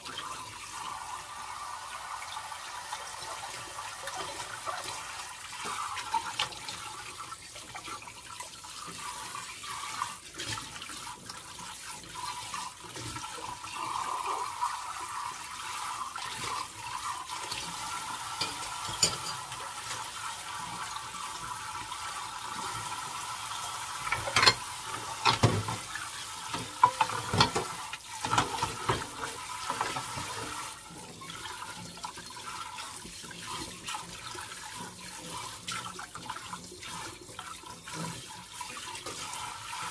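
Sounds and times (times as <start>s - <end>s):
tap running onto dishes: 18.2s - 20.1s, 24.0s - 30.6s
dishes knocking: 18.4s - 19.5s, 24.2s - 24.6s, 25.2s - 25.8s, 26.8s - 27.7s.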